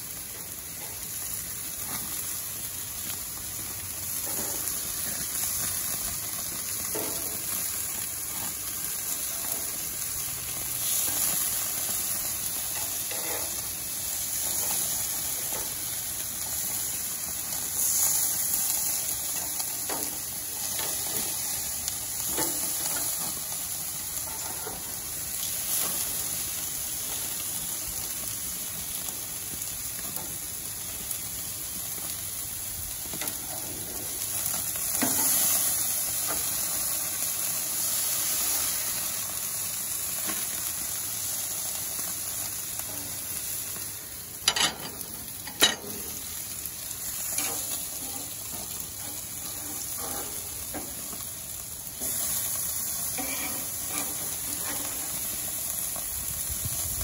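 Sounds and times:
meat sizzling on a grill: 0:00.0 - 0:57.0.

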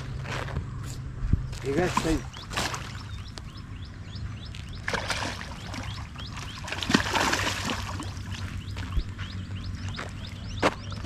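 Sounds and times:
small bird chirping: 0:01.5 - 0:07.0, 0:07.6 - 0:11.0
water splashing and pouring: 0:06.6 - 0:08.4.

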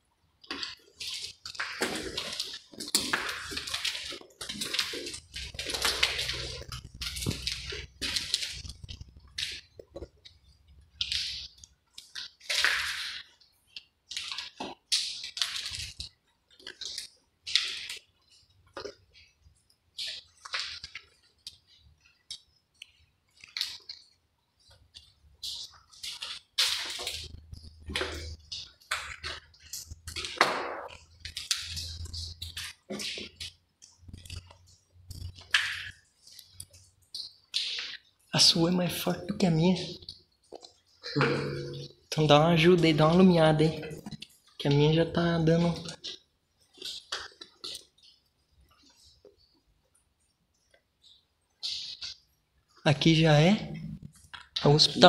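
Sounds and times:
footsteps crunching and scuffing: 0:00.5 - 0:13.3, 0:25.0 - 0:41.9.

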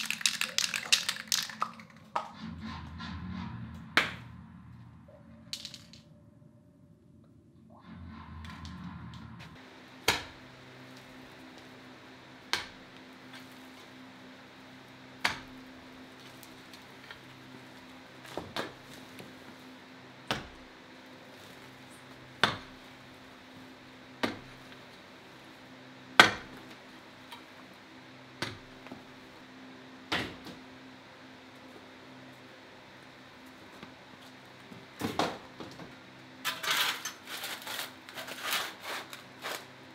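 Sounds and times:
low hum: 0:01.6 - 0:18.2.

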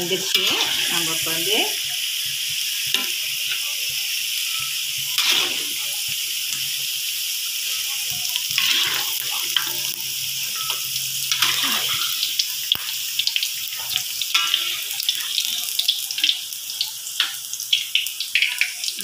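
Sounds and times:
metal scraping against pan: 0:00.0 - 0:01.8, 0:04.5 - 0:06.8, 0:08.1 - 0:13.0, 0:13.7 - 0:15.3
liver sizzling in hot oil: 0:00.0 - 0:19.0.

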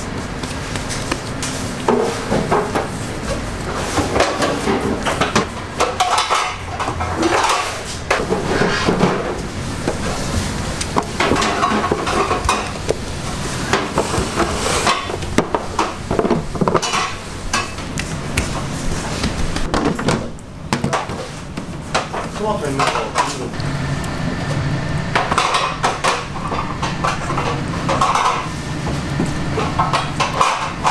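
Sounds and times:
metal baking pans clattering: 0:03.7 - 0:09.4, 0:11.0 - 0:12.8, 0:13.7 - 0:17.9, 0:21.9 - 0:23.5, 0:25.2 - 0:28.6, 0:29.6 - 0:30.9.

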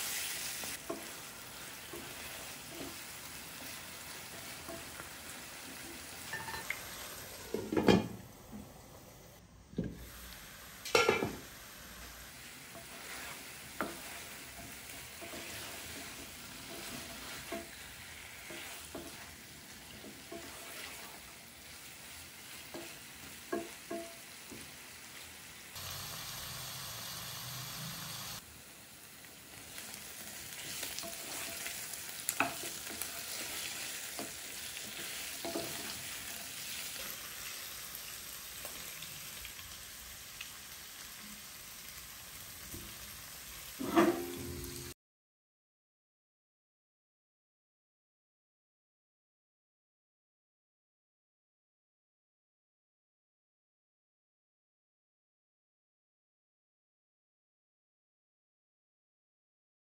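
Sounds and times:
chicken sizzling in oil: 0:00.0 - 0:08.5, 0:09.9 - 0:45.0
wooden spatula scraping a pan: 0:00.1 - 0:08.2, 0:12.4 - 0:24.7, 0:30.5 - 0:37.6, 0:43.8 - 0:44.8.

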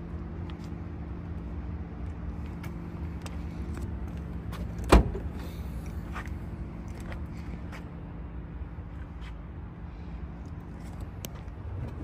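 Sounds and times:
car trunk latch clunk: 0:04.9 - 0:05.2.

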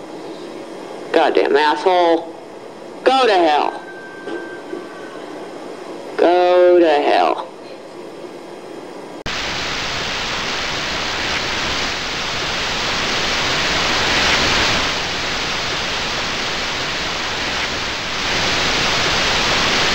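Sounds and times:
loud static hiss: 0:09.0 - 0:19.9.

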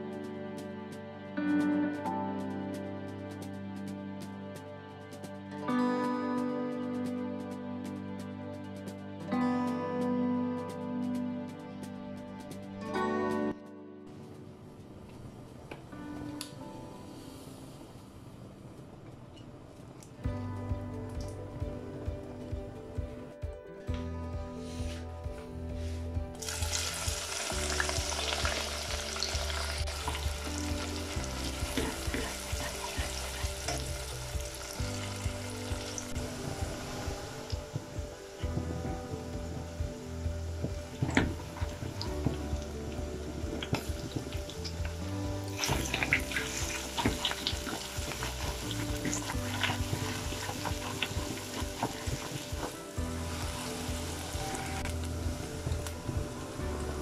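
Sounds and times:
onions sizzling in oil: 0:26.4 - 0:57.0.

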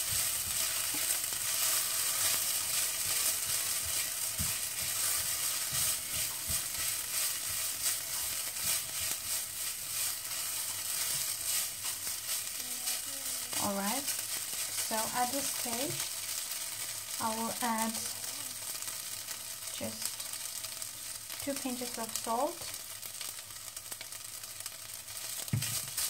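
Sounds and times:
spatula scraping a pan: 0:00.0 - 0:17.2
fried rice sizzling in oil: 0:00.0 - 0:26.0.

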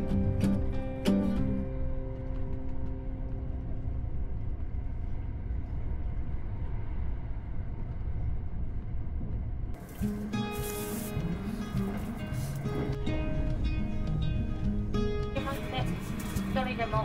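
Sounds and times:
background music: 0:00.0 - 0:03.9, 0:09.8 - 0:17.0
train running rumble: 0:00.0 - 0:17.0
short hiss: 0:09.9 - 0:11.3.

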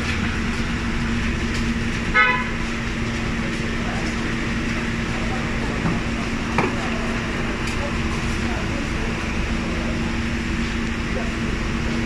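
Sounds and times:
short vehicle horn toot: 0:02.1 - 0:02.6.

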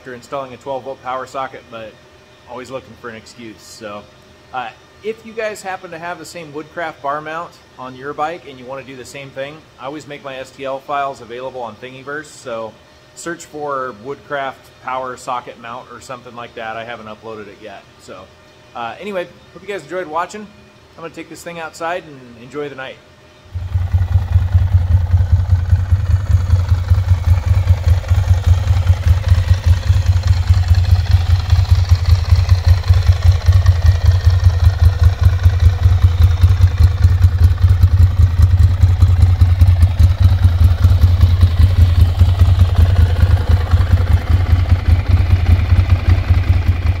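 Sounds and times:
motorcycle engine idling: 0:23.5 - 0:47.0.

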